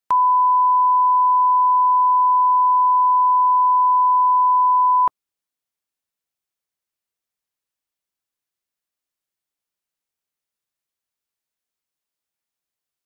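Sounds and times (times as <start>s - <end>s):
pure test tone beep: 0.1s - 5.1s.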